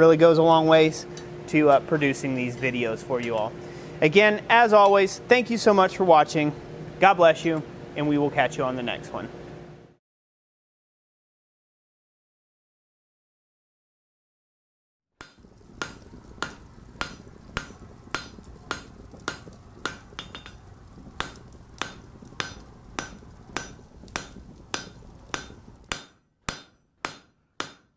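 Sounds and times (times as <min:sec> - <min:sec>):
hammer striking anvil: 0:15.2 - 0:20.6, 0:21.2 - 0:27.9
steady low rumble: 0:15.4 - 0:26.0.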